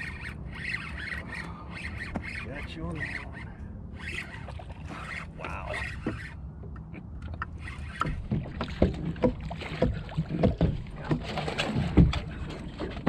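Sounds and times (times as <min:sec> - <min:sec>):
water sloshing against boat: 0:00.0 - 0:13.0
knocks on boat: 0:08.0 - 0:13.0.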